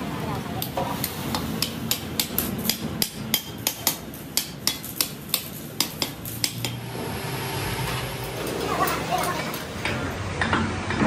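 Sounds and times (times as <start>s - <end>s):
hammer striking metal: 0.6s - 6.9s.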